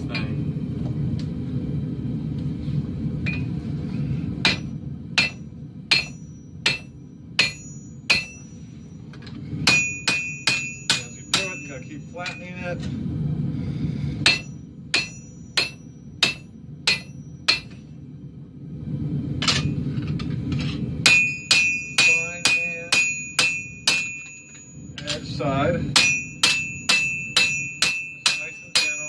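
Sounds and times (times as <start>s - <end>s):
low rumble: 0.0s - 28.7s
hammer striking blade on anvil: 4.4s - 8.6s, 9.6s - 12.6s, 14.2s - 17.9s, 21.0s - 25.3s, 25.9s - 29.0s
anvil ringing: 4.4s - 12.8s, 14.2s - 17.9s, 21.0s - 29.0s.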